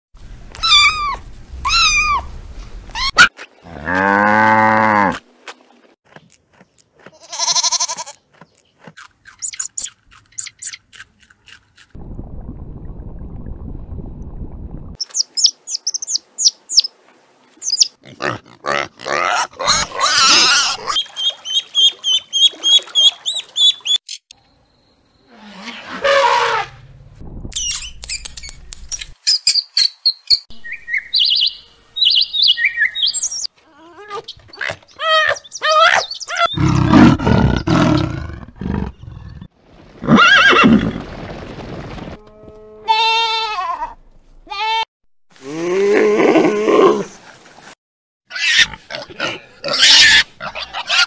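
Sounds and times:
farm animal bleating: 7.0s - 8.2s, 42.2s - 45.7s
bird chirps: 8.4s - 10.8s, 15.0s - 16.9s, 17.6s - 17.9s, 27.6s - 33.5s, 34.2s - 36.7s.

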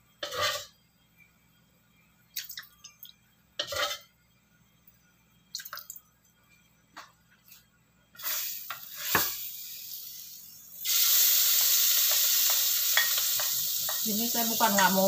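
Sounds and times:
metal ladle scraping wok: 0.2s - 0.7s, 3.6s - 4.1s.

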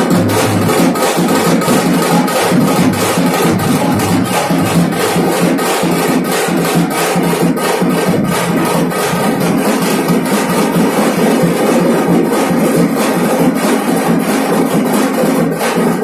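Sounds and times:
dhol drumming fast beat: 0.0s - 16.0s.

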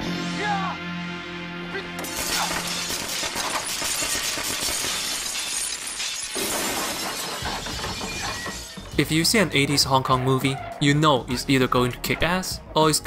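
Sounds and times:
glass shattering: 2.0s - 9.0s.

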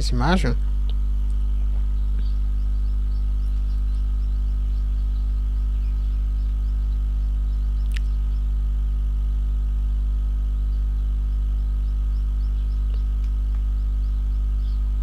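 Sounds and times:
mains hum: 0.0s - 15.0s
sharp click: 7.8s - 8.1s.

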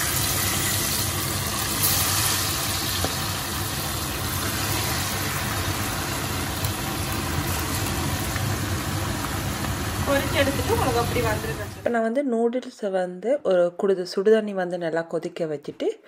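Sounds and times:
prawns sizzling in hot oil: 0.0s - 11.8s.

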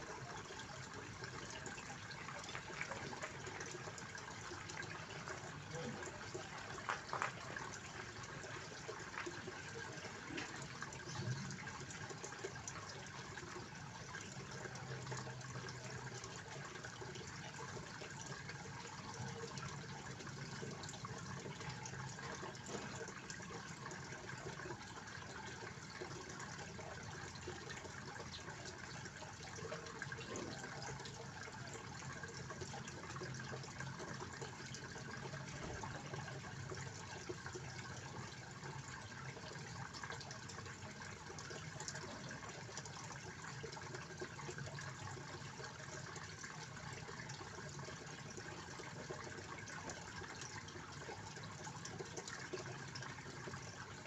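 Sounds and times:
fountain water splashing: 0.0s - 11.5s.

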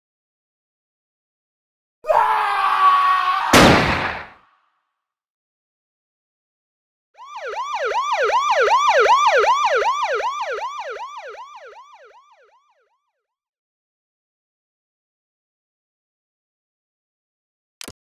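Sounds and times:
police siren wailing: 7.2s - 13.3s.

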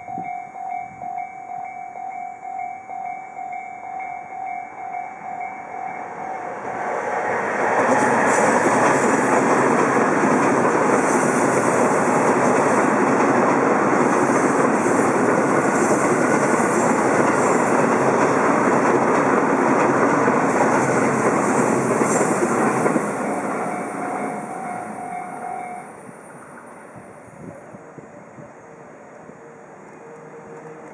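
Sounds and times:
train wheels rumbling on rails: 4.8s - 30.9s
level crossing warning alarm: 23.0s - 26.0s.

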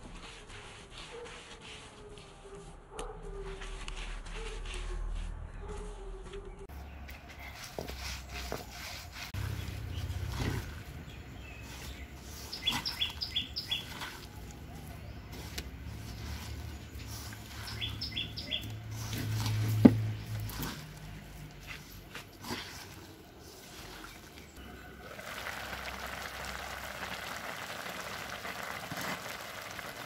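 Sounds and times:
bird chirping: 6.4s - 15.4s, 16.8s - 18.8s
hands mixing food rustling: 6.7s - 30.0s.

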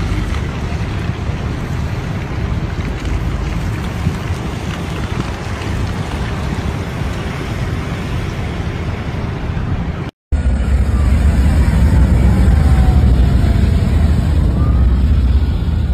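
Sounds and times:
motorcycle engines rumbling: 0.0s - 15.9s
traffic noise: 0.0s - 15.9s
wind on microphone: 0.0s - 15.9s
faint falling whine: 10.4s - 15.9s.

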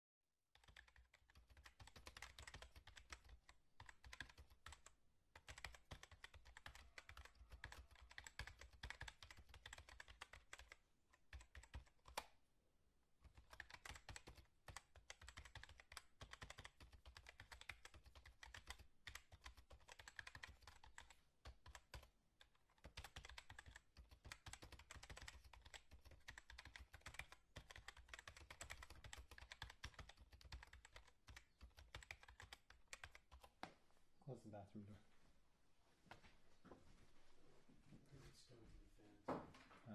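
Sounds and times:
fast typing on computer keyboard: 0.5s - 12.3s, 13.2s - 33.6s.

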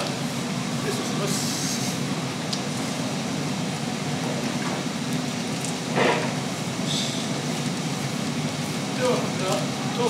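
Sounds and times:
pump engine running steadily: 0.0s - 10.0s.

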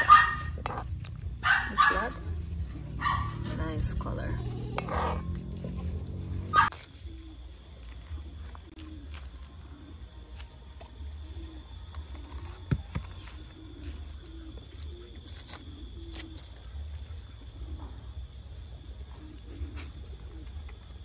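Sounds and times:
dove cooing: 2.9s - 21.0s
coconut husk tearing: 4.4s - 21.0s.

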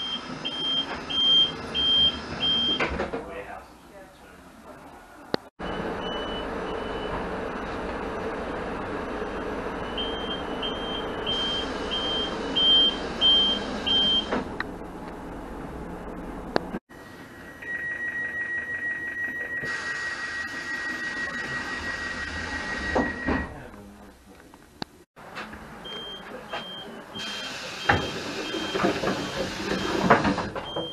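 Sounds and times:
fast-pulsing high warning tone: 17.2s - 23.2s.

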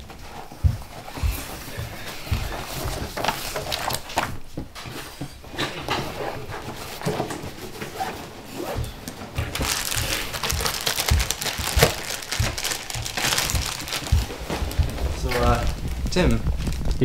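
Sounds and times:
plastic bag crinkling: 2.8s - 4.4s, 9.5s - 17.0s
dull low thumps: 8.8s - 17.0s.

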